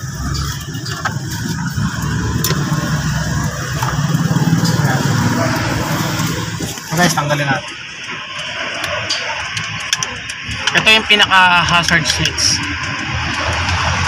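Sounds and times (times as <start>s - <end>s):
low steady rumble: 0.0s - 8.8s.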